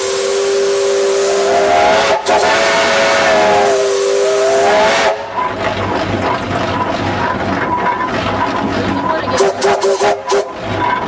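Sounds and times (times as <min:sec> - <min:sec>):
steam whistle blowing: 0:00.0 - 0:05.5, 0:09.4 - 0:10.6
steam hissing: 0:00.0 - 0:05.6, 0:09.4 - 0:10.6
engine noise: 0:00.0 - 0:11.0.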